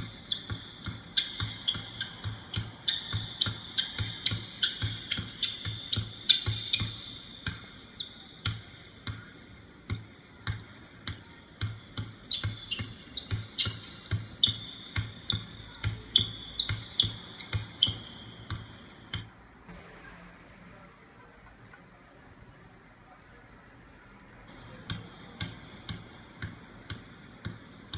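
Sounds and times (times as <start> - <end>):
basketball dribbled on hardwood: 0.0 - 7.7, 8.4 - 9.3, 9.9 - 19.3, 24.8 - 27.6.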